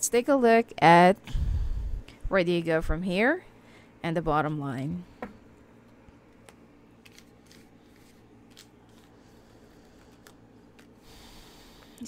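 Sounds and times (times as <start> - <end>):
low steady hum: 0.0 - 12.0
cards clicking in hands: 6.4 - 9.2, 9.9 - 11.0.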